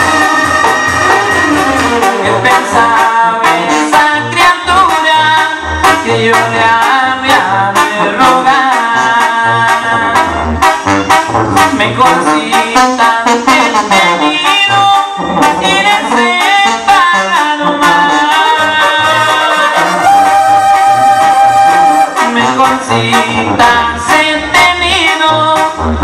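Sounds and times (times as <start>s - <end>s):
steady drum beat: 0.0s - 3.1s
brass and clarinets melody: 0.0s - 26.0s
tuba bass line: 0.0s - 26.0s.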